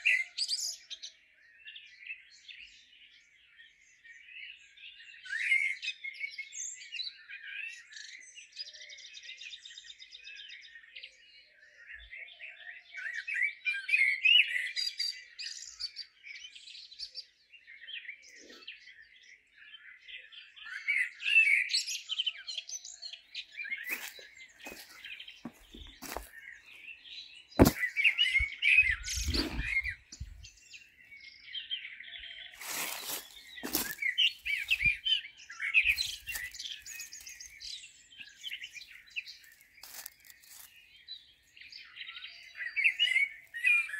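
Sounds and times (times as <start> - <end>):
songbirds chirping: 0.0 - 43.9
rustling: 32.6 - 35.0, 35.9 - 37.4, 39.4 - 40.7.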